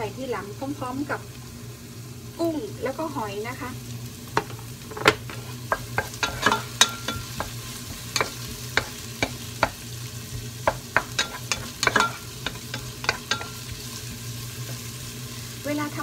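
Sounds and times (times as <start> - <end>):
onions sizzling in oil: 0.0 - 16.0
spatula scraping a pot: 5.1 - 14.9.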